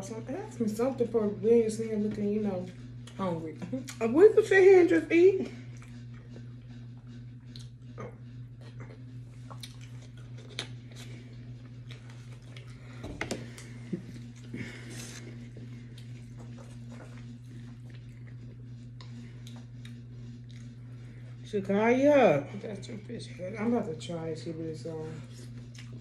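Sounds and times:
steady low hum: 0.0s - 26.0s
people chewing: 5.4s - 21.4s, 25.2s - 26.0s.

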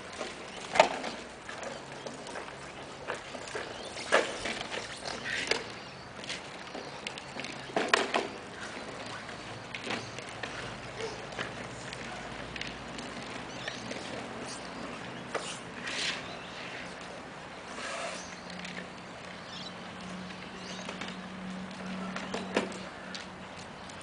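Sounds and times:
plastic wheels rolling on concrete: 0.0s - 24.0s
knocks and scrapes: 3.0s - 17.0s.

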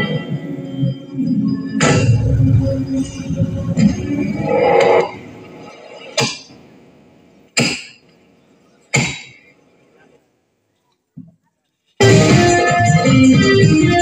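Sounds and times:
sharp ringing hits: 0.0s - 6.5s
recorded music: 0.0s - 8.1s, 12.0s - 14.0s.

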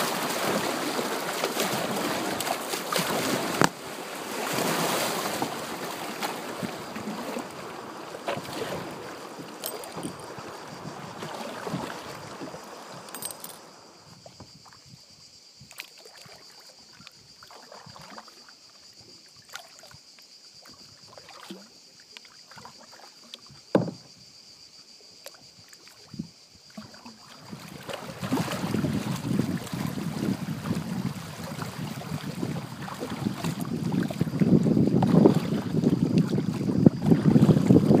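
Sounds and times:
water rushing past hull: 0.0s - 14.4s, 26.7s - 38.0s
paddle dips and splashes: 0.0s - 14.8s, 15.6s - 24.1s, 25.2s - 38.0s.

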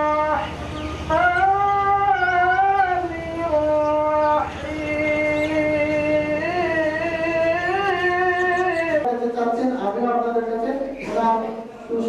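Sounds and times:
person singing a long note: 0.0s - 9.1s.

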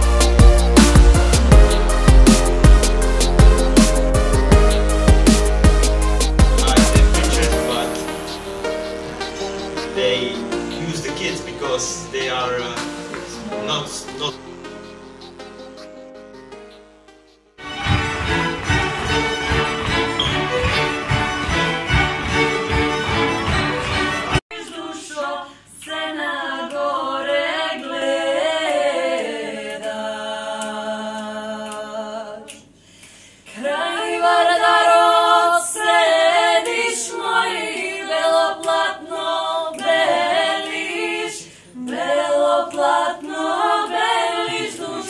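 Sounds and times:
fiddles and cello playing: 4.6s - 16.4s, 17.6s - 24.4s
women singing a cappella: 24.5s - 32.7s, 33.5s - 45.0s.

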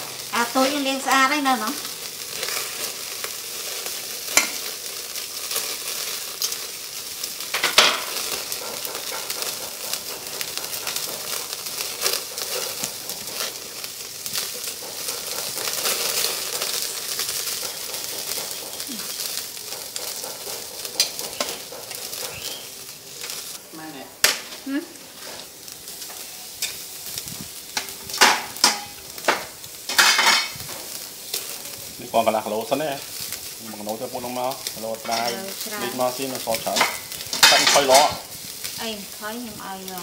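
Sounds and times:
meat sizzling on grill: 0.0s - 40.0s.

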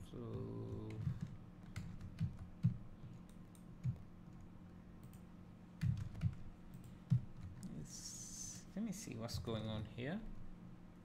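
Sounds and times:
keyboard and mouse clicking: 5.0s - 5.2s.

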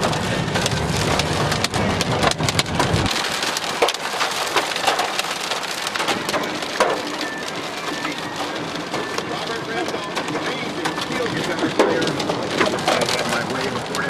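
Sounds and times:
low rumble: 0.0s - 3.4s
rain and hail on a car: 0.0s - 14.0s.

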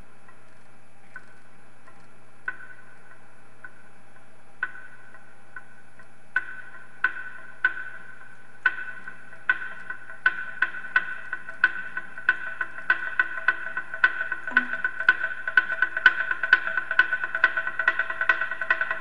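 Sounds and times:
faint steady hum: 0.0s - 19.0s
ringing percussion knocks: 14.5s - 15.2s.

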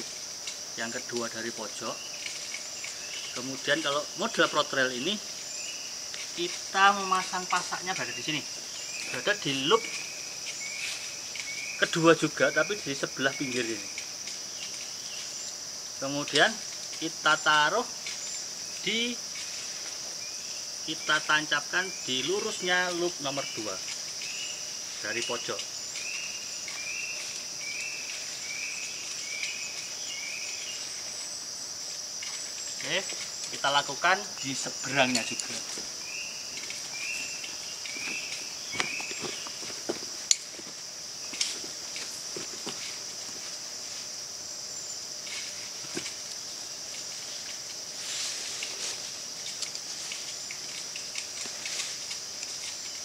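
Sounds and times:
insects buzzing: 0.0s - 53.0s.

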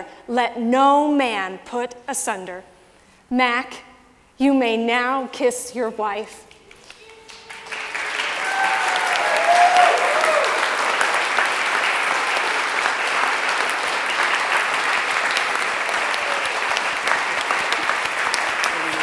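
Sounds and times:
audience applauding: 6.8s - 19.0s
voices cheering: 7.0s - 19.0s.

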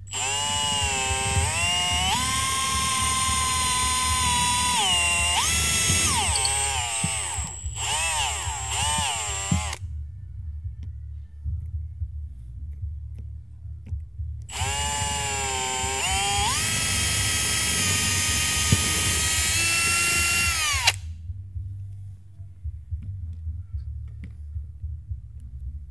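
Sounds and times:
cordless drill motor whine: 0.0s - 9.8s, 14.5s - 21.0s.

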